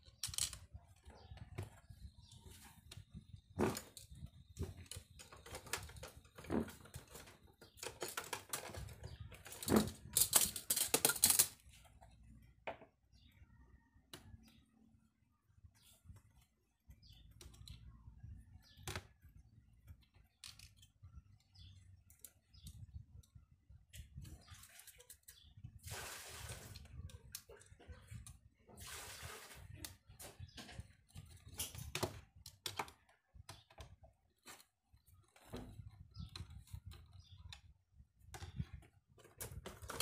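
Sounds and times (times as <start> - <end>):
plastic box clicking and clattering: 3.6 - 11.6, 38.4 - 40.0.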